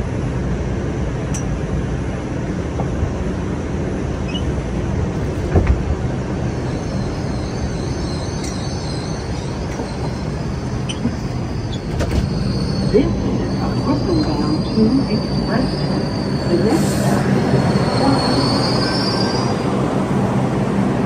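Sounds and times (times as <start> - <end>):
subway car wheels rumbling: 0.0 - 21.0
wheels squealing: 4.2 - 4.6, 6.5 - 19.6.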